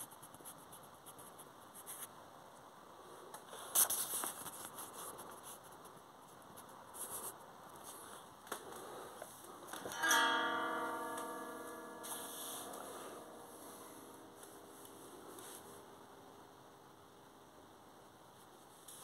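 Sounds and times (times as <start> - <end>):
plucked string chord ringing: 9.7 - 16.1.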